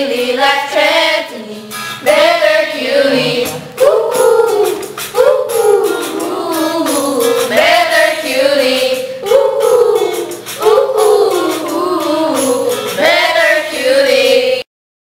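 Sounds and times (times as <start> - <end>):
women singing wordless phrases: 0.0 - 14.6
pop backing track with beat: 1.7 - 14.4
tambourine-like percussion: 3.1 - 8.1, 8.8 - 13.5.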